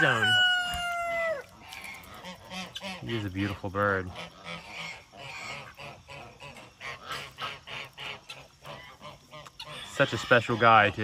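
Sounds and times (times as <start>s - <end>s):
geese honking: 0.0s - 11.0s
waterfowl calls: 0.0s - 11.0s.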